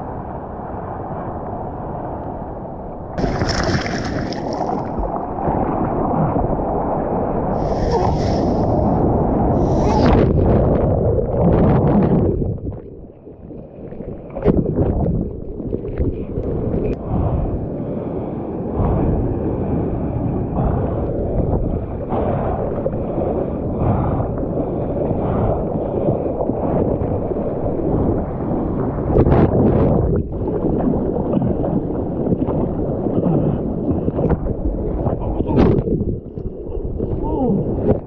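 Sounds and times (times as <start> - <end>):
wind buffeting microphone: 0.0 - 38.0
water splashing against bodyboard: 3.2 - 5.4.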